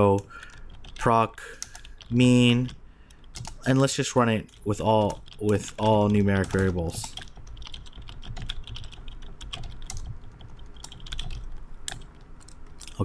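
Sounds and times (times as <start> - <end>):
typing on keyboard: 0.0 - 13.0.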